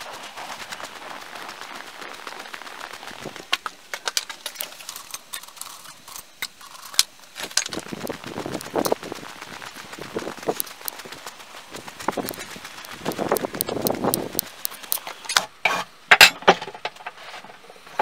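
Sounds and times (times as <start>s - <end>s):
footsteps crunching through snow: 0.0s - 5.1s, 7.3s - 15.1s.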